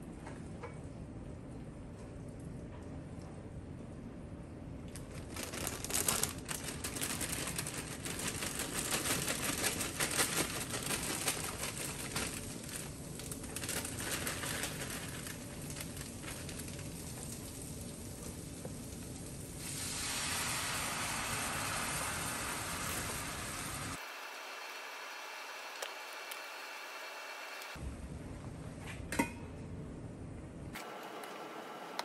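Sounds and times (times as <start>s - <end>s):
plastic bag crinkling: 4.9s - 17.7s
food sizzling in skillets: 19.5s - 25.4s.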